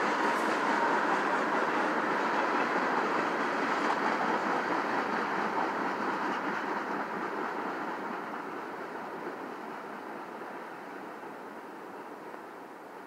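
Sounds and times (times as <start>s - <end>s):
train wheels rolling on rails: 0.0s - 13.0s.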